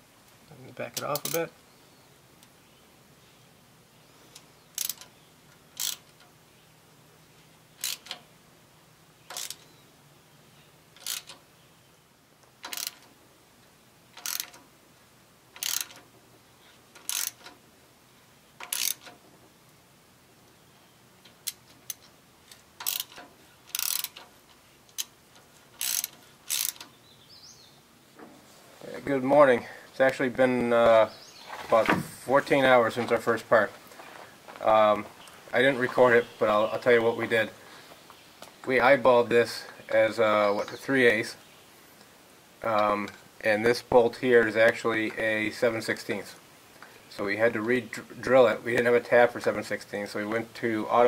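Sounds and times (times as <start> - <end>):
ratchet wrench clicking: 4.8 - 5.1, 5.7 - 6.2, 7.8 - 8.2, 9.3 - 9.6, 11.0 - 11.4, 12.6 - 13.1, 14.2 - 14.6, 15.6 - 16.0, 17.0 - 17.6, 18.6 - 19.2, 21.4 - 24.3, 25.7 - 26.9.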